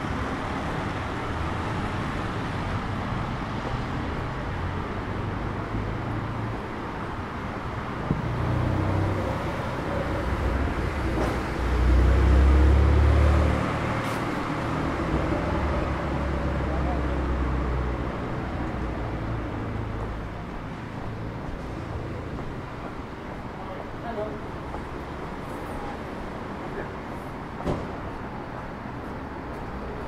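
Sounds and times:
cars driving past: 0.0 - 30.0.

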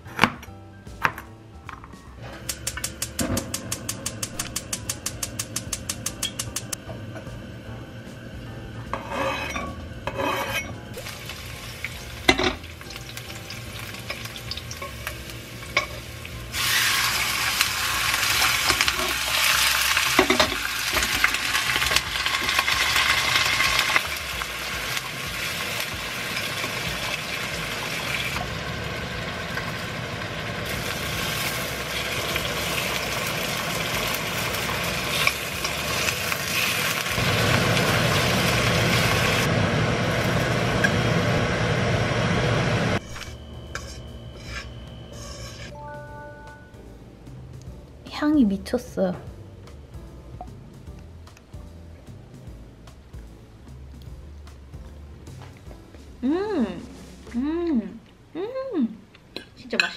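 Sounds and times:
utensils knocking on pan: 2.4 - 6.8
food sizzling in oil: 9.0 - 45.8.

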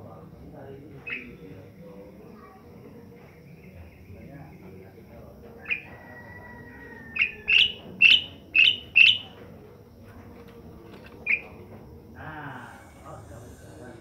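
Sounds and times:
starling harsh calls: 1.0 - 1.6, 5.6 - 9.4, 11.2 - 11.6.

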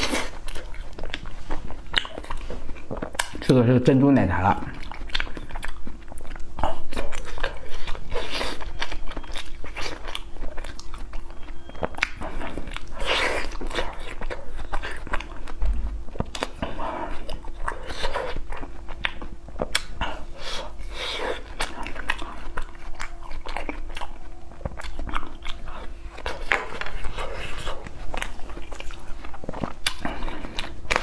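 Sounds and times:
mouth clicks and smacks: 0.0 - 3.5, 4.7 - 20.8
biting and chewing ice cream: 0.0 - 31.0.

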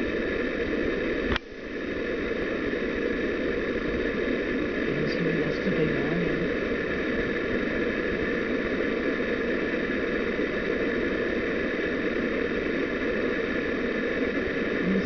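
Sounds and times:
mechanical hum and hiss: 0.0 - 15.0.

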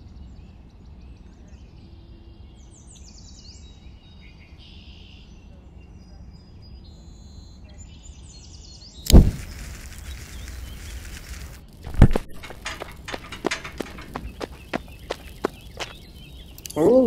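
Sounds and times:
birds chirping: 8.0 - 17.0
sudden loud hit: 9.1 - 9.8.

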